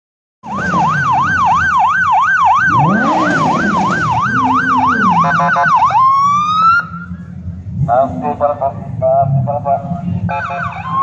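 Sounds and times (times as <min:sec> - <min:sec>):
police siren yelping: 0:00.4 - 0:07.4, 0:10.3 - 0:11.0.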